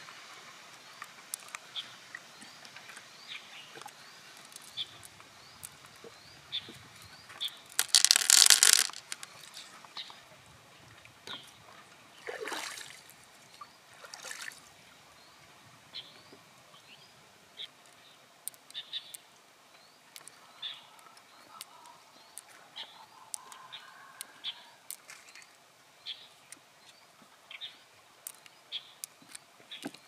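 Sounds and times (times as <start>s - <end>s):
pearls clicking together: 1.3s - 1.6s, 3.8s - 5.8s, 7.4s - 9.4s, 17.8s - 19.2s, 28.2s - 29.4s.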